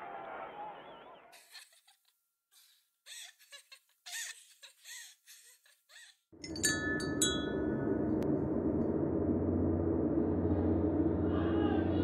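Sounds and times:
bright chime strikes: 0:06.4 - 0:08.0
low drone: 0:06.4 - 0:12.0.

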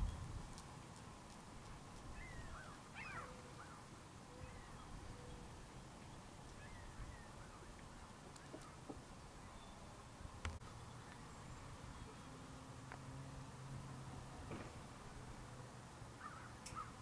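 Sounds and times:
faint outdoor ambience: 0:00.0 - 0:17.0
faint bird chirps: 0:02.1 - 0:10.0.

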